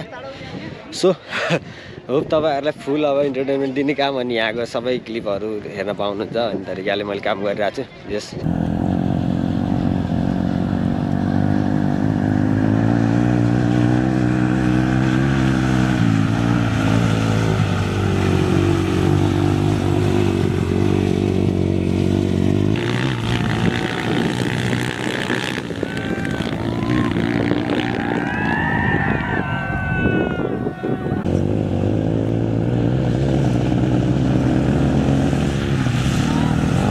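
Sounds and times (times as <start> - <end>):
dirt bike engine revving: 8.4 - 28.8, 31.2 - 36.9.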